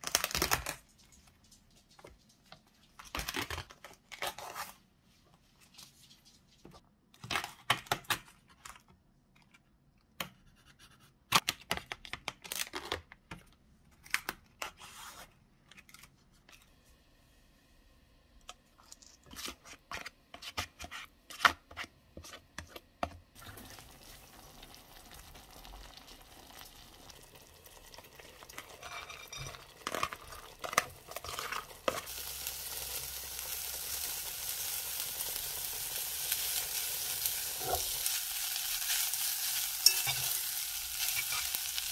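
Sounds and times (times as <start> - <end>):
rice sizzling in a pan: 23.4 - 41.9
spatula stirring in a pan: 28.4 - 41.9.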